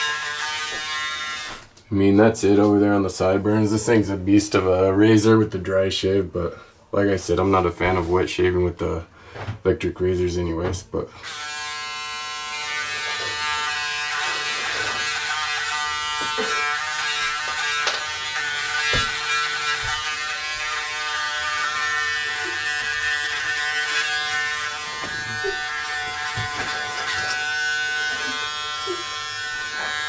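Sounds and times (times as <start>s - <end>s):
electric shaver buzzing: 0.0s - 1.7s, 11.2s - 30.0s.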